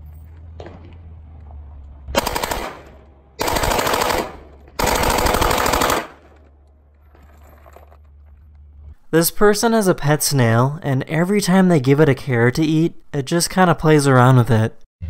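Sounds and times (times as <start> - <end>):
submachine gun automatic fire: 2.1 - 6.4.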